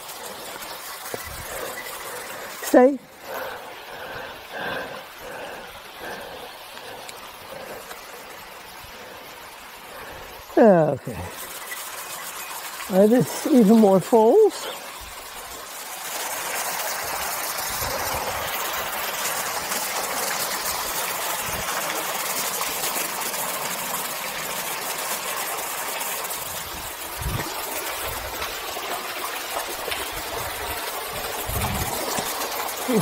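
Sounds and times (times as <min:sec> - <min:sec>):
waterfall rushing: 0:00.0 - 0:33.0.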